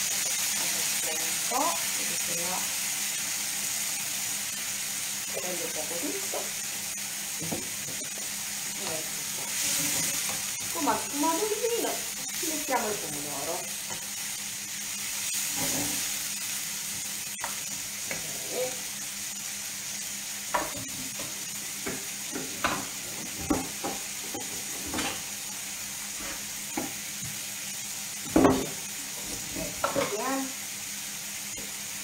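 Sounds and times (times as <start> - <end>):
food sizzling in a pan: 0.0 - 32.0
kitchen utensils clattering: 22.4 - 25.3.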